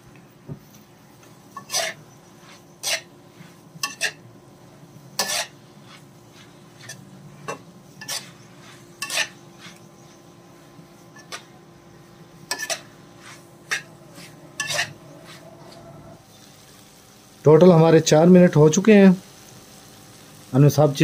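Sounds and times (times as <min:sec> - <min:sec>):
metal spatula scraping a pan: 0:01.5 - 0:04.3, 0:05.1 - 0:11.6, 0:12.4 - 0:16.0.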